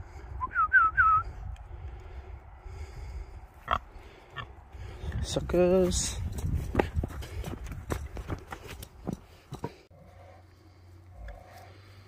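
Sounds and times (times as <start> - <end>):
person whistling falling notes: 0.4 - 1.2.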